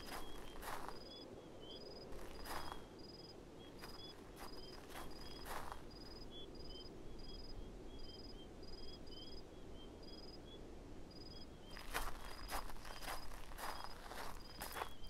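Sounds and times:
footstep on dirt: 0:00.0 - 0:01.0, 0:02.1 - 0:02.8, 0:03.8 - 0:05.9, 0:11.7 - 0:15.0
crickets chirping: 0:00.0 - 0:15.0
low background hiss: 0:00.0 - 0:15.0.

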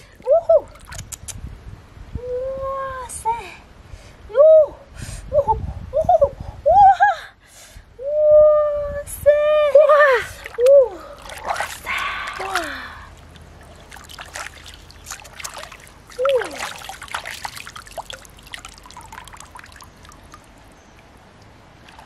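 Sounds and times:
water splashing and trickling: 0:00.0 - 0:01.3, 0:09.8 - 0:22.0
water dripping: 0:10.3 - 0:22.0.

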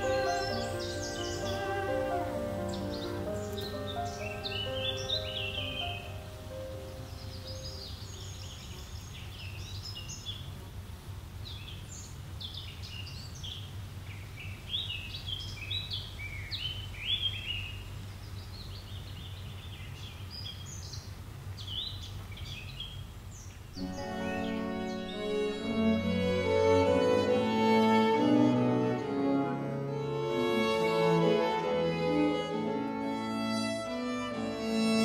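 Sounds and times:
small birds chirping: 0:00.0 - 0:27.9
low outdoor ambience hum: 0:00.0 - 0:35.0.

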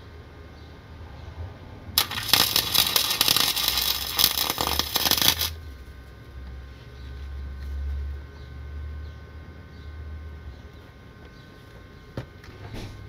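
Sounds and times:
welding arc crackling: 0:02.0 - 0:06.2.

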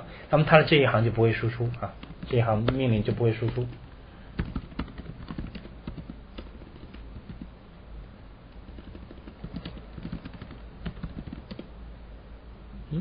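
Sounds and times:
computer keyboard typing: 0:01.6 - 0:07.5, 0:08.6 - 0:11.7.

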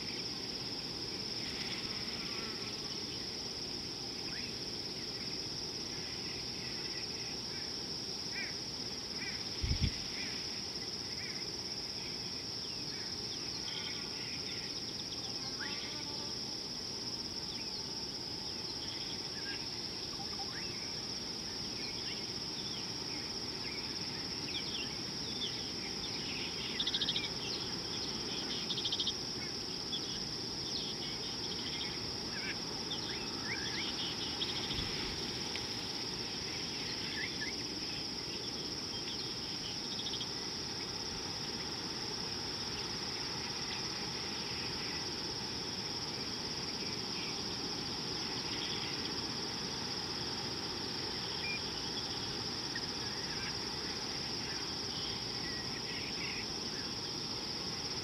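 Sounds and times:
insect chorus droning: 0:00.0 - 0:58.0
low background hiss: 0:00.0 - 0:58.0.

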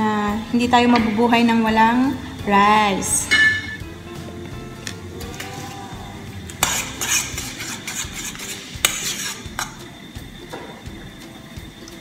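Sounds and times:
spoon clinking on pan: 0:03.3 - 0:03.8
spoon scraping sauce in a pan: 0:06.6 - 0:09.8.

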